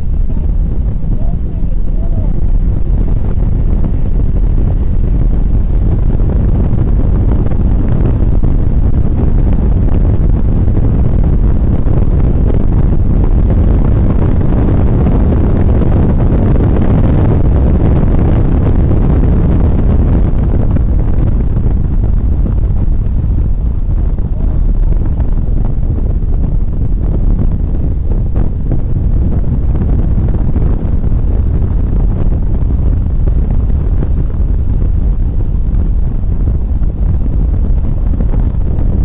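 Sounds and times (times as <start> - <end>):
wind and road roar: 0.0 - 39.0.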